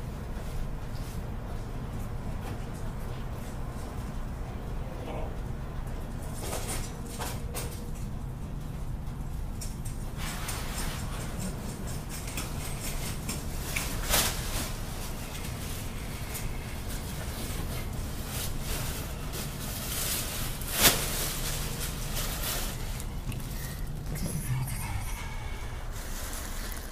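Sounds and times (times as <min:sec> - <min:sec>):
machines humming: 0:21.4 - 0:26.9.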